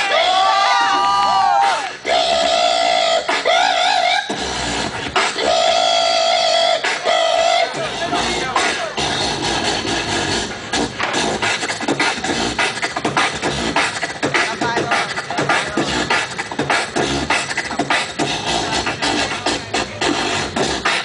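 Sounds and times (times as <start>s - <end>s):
amplified beatboxing: 1.0s - 21.0s.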